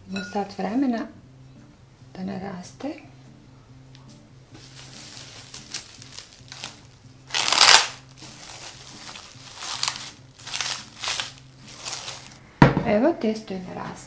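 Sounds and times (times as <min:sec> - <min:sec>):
cling film crinkling: 0:04.6 - 0:12.4.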